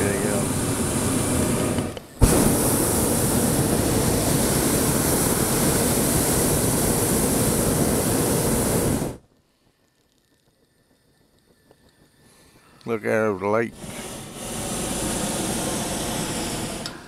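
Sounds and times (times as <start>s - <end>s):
propane burner roaring: 0.0s - 9.2s, 10.8s - 17.0s.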